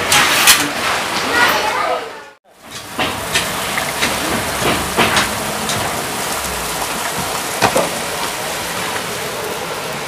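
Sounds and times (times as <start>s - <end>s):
steady outdoor hiss: 2.5s - 10.0s.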